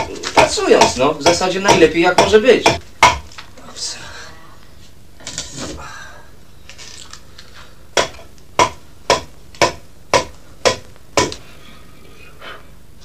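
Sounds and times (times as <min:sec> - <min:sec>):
axe chopping wood: 0:00.0 - 0:03.3, 0:08.0 - 0:11.4.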